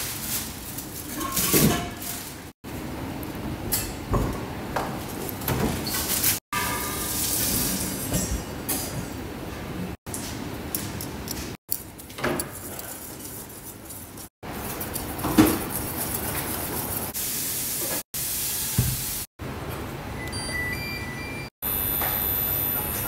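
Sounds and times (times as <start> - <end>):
cooktop control panel beeps: 20.2 - 23.0.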